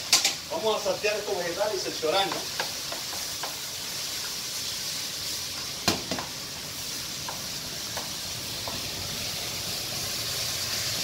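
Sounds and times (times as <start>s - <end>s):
vegetables sizzling in a pan: 0.0s - 11.0s
spatula knocking on pan: 2.2s - 3.6s, 7.2s - 8.8s
spatula tapping pan: 2.2s - 3.7s, 7.2s - 8.9s.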